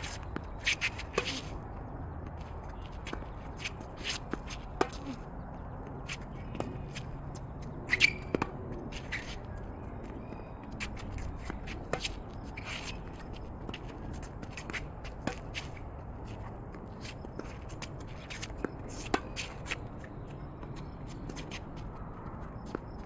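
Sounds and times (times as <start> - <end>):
racket striking tennis ball: 0.0 - 1.6, 3.0 - 5.2, 7.9 - 9.4, 10.8 - 15.9
shoes squeaking on court: 0.0 - 23.0
tennis ball bouncing: 0.0 - 23.0.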